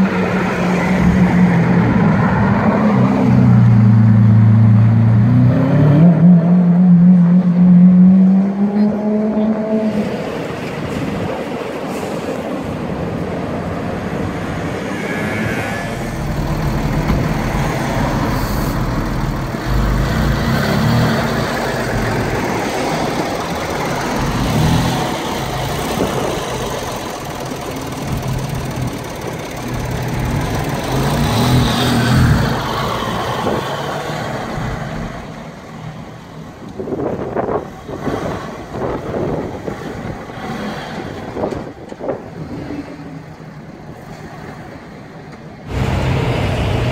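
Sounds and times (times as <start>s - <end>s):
car engines running and revving: 0.0s - 46.9s.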